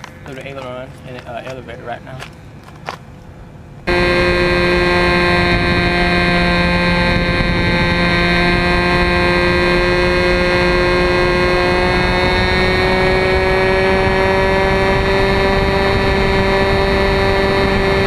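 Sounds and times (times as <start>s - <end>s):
model plane engine running: 3.9s - 18.0s.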